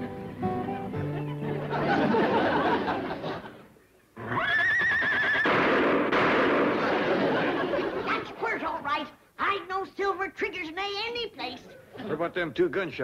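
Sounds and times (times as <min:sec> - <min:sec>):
horse whinnying: 0:04.2 - 0:05.7.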